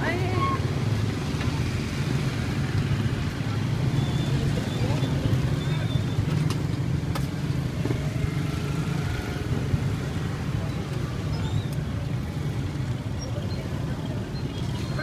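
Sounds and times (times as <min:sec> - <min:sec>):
low rumble of street traffic: 0:00.0 - 0:15.0
motorbike engines passing: 0:00.0 - 0:15.0.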